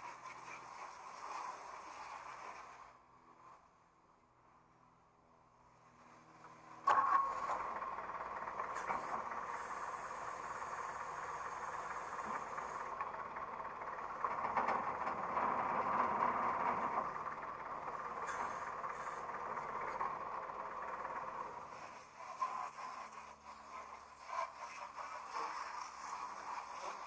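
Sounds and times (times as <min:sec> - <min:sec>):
forklift engine idling: 0:05.8 - 0:27.0.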